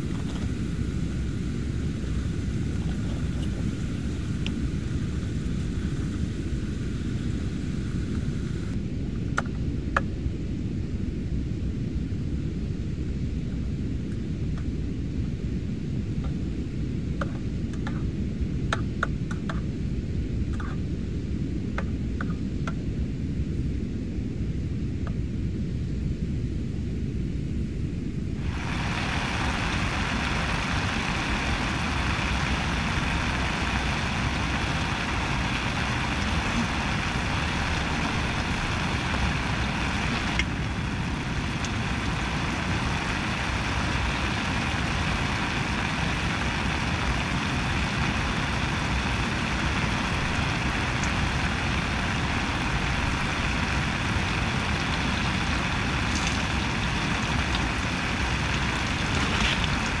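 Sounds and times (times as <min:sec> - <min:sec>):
gas stove hissing: 0:00.0 - 0:08.8, 0:28.2 - 1:00.0.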